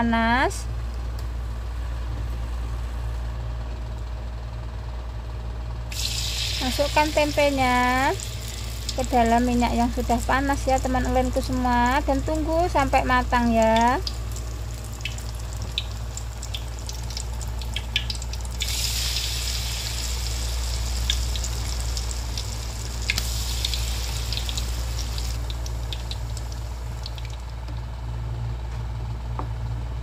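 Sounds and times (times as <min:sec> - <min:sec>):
low hum: 0:00.0 - 0:30.0
food deep-frying in hot oil: 0:05.9 - 0:27.6
oil popping and crackling: 0:05.9 - 0:27.6.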